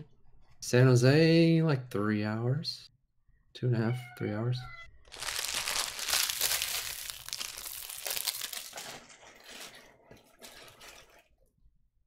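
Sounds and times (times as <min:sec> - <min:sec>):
plastic packaging crinkling and tearing: 0:05.1 - 0:09.7.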